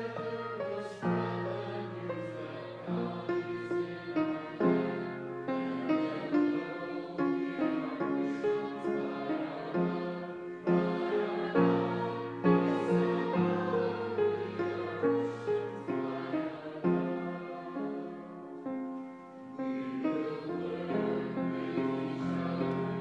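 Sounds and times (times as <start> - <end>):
grand piano playing a hymn: 0.0 - 23.0.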